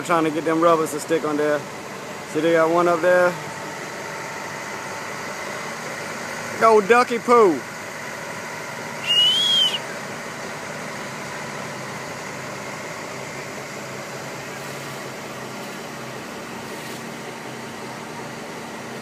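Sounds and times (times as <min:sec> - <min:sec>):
crane engine humming: 0:00.0 - 0:19.0
high whistle: 0:09.0 - 0:10.0.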